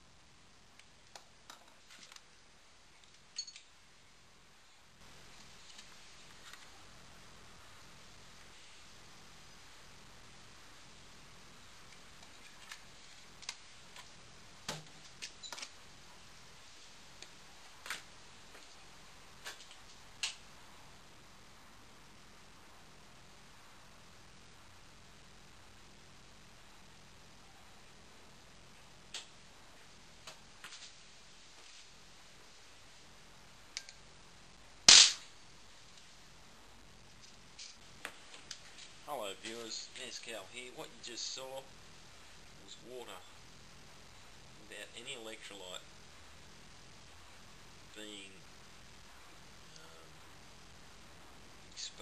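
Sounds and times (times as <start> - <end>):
faint hiss: 0.0 - 52.0
sharp clicks and snaps: 11.9 - 14.1, 19.4 - 20.5, 29.1 - 29.4, 33.7 - 34.0
sharp bang: 34.9 - 35.3.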